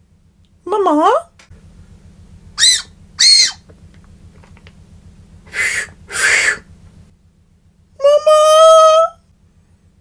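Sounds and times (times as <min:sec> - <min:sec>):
shrill candy whistle notes: 0:02.6 - 0:03.6
breathy puffs of air: 0:05.4 - 0:06.7.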